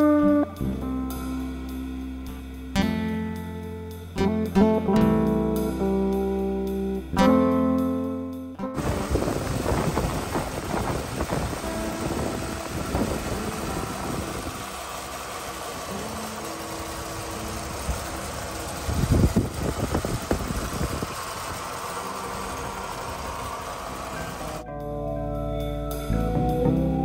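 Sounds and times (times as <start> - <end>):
truck engine idling: 8.8 - 24.6.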